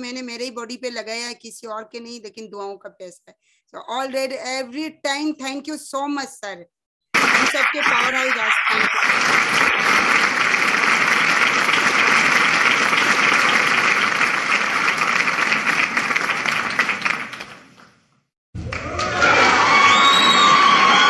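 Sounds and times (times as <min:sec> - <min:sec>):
applause: 0:07.1 - 0:18.0, 0:18.6 - 0:21.0.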